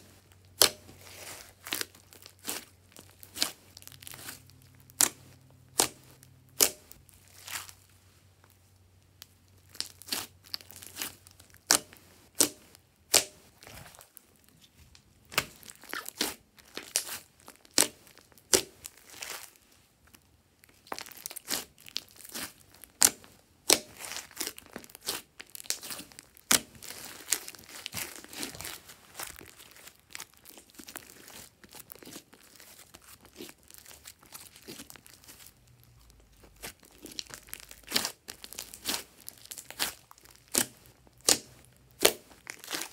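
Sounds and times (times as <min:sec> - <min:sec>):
slime popping and crackling: 0:15.2 - 0:19.5, 0:20.6 - 0:42.9.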